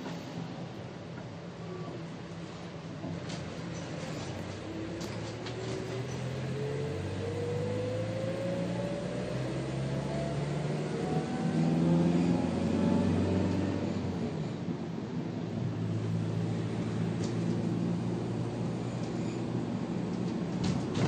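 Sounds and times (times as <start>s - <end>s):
rising drivetrain whine: 4.6s - 14.6s
vehicle engine accelerating: 5.0s - 14.3s.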